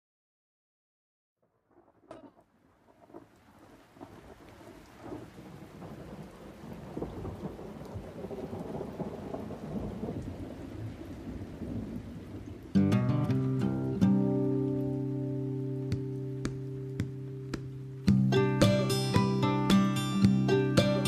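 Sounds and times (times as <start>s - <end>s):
guitar music: 12.8s - 21.0s.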